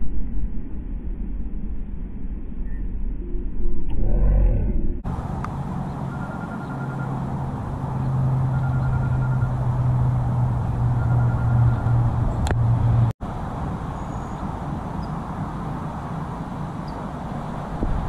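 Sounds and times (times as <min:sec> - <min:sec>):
road traffic rumble: 0:05.0 - 0:18.0.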